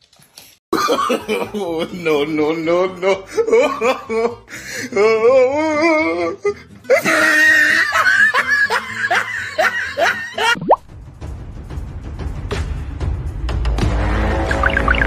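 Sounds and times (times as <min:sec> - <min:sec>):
person laughing: 0:00.8 - 0:10.6.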